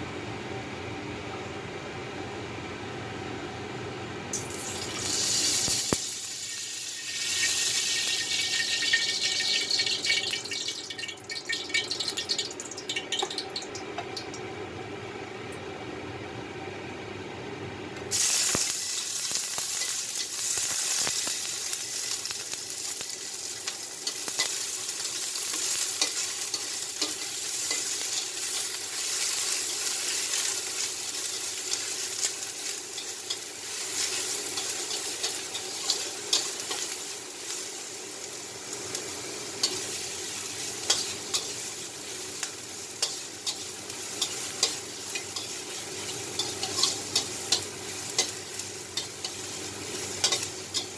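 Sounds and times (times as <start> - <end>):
oil sizzling: 4.3 - 14.4, 18.1 - 50.9
food dropping into hot oil: 7.2 - 14.3
metal spatula scraping wok: 40.7 - 41.8, 43.0 - 50.9.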